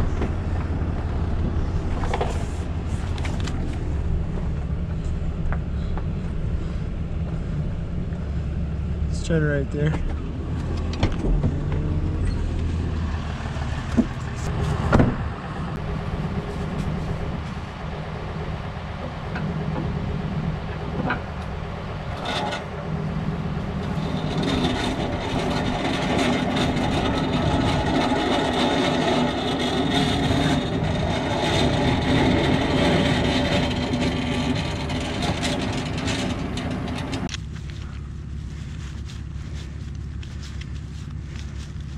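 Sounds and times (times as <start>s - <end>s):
truck engine running: 0.0s - 41.9s
steady higher hum: 14.3s - 41.9s.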